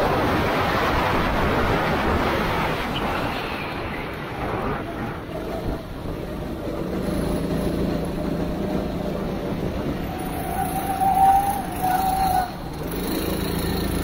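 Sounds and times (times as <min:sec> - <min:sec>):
wind rushing: 0:00.0 - 0:06.6
wet track noise: 0:00.0 - 0:14.0
go-kart engine revving: 0:05.3 - 0:14.0.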